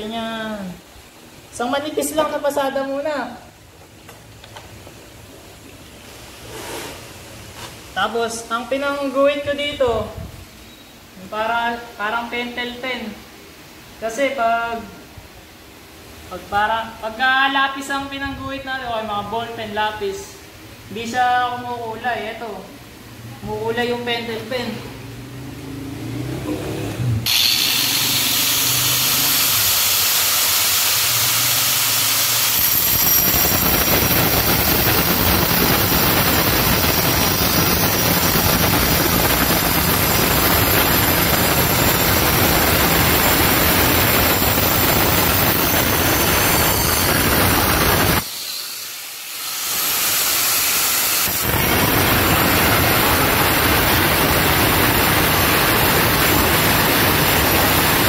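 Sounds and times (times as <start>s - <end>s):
angle grinder cutting tile: 27.2s - 58.0s.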